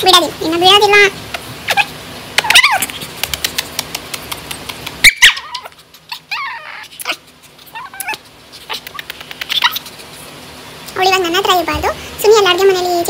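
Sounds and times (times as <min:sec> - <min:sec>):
dog whining: 0:01.6 - 0:03.1, 0:04.6 - 0:10.2.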